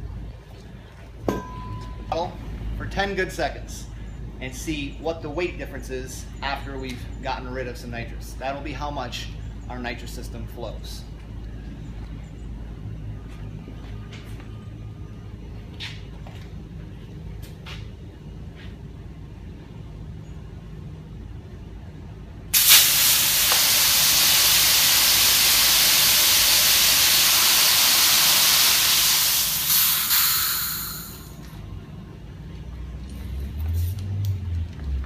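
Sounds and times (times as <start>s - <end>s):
gas blasting from nozzles: 22.5s - 31.4s.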